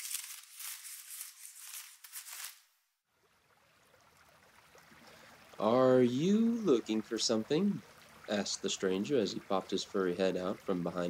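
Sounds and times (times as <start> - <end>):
leaves and brush rustling: 0.0 - 2.7
faint flowing stream: 3.0 - 11.0.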